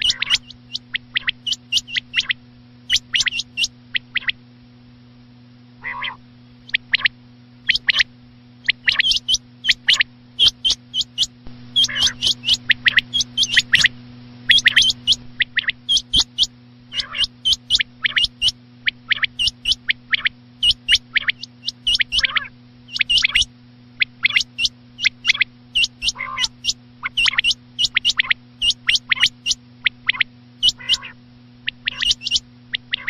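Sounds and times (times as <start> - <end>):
quail calls: 0.0 - 4.4, 5.8 - 7.1, 7.7 - 13.9, 14.5 - 33.0
steady low hum: 0.0 - 33.0.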